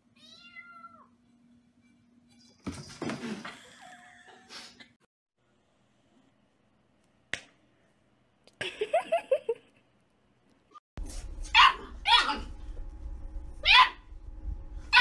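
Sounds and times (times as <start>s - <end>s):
dog yipping: 11.5s - 12.5s, 13.6s - 14.0s
dog barking: 11.6s - 12.5s, 13.6s - 14.0s.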